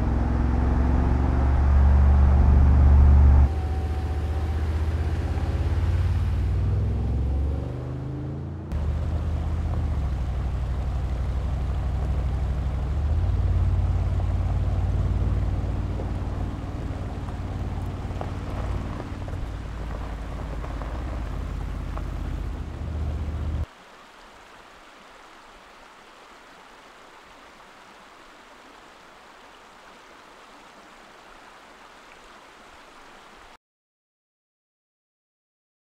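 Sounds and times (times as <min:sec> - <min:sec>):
car engine running under load: 0:00.0 - 0:23.7
water rushing in shallow stream: 0:00.0 - 0:33.6.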